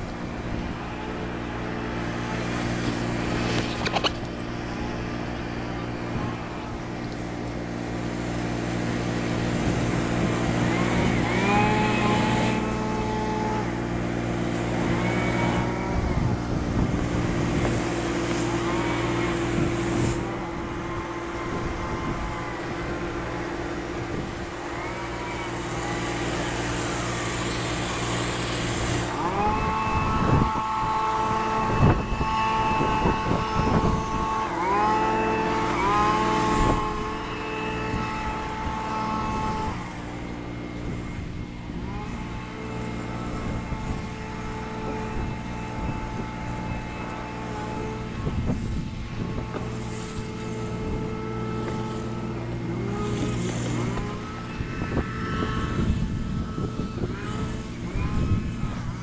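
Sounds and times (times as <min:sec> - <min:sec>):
pressure washer engine drone: 0:00.0 - 0:59.0
held tones sliding upward: 0:10.6 - 0:59.0
spray wand hissing: 0:42.2 - 0:58.5.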